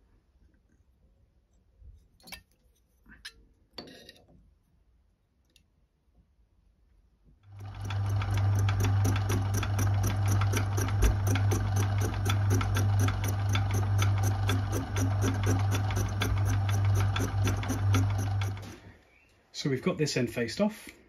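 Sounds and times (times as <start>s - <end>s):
lathe running: 7.5s - 18.8s.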